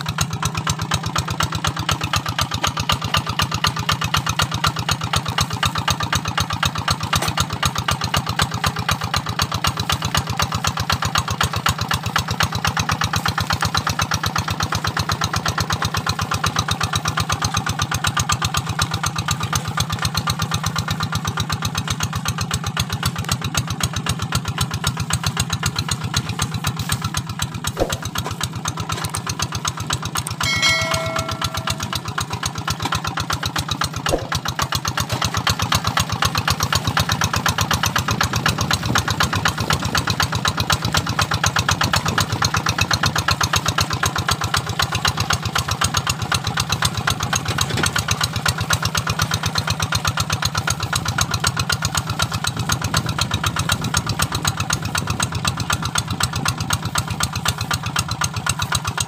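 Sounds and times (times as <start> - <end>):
diesel engine running under load: 0.0 - 59.0
short ringing tone: 30.4 - 32.2.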